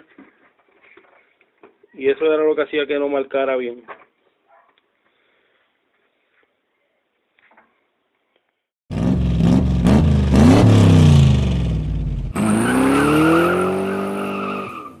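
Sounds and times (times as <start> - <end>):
car engine revving: 8.9 - 15.0.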